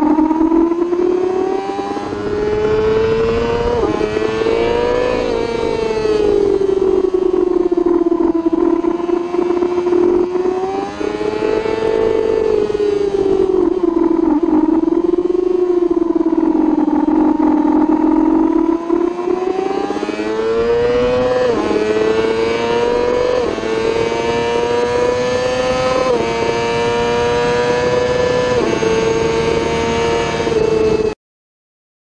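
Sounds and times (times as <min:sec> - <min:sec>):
motorcycle engine accelerating: 0:00.0 - 0:31.2.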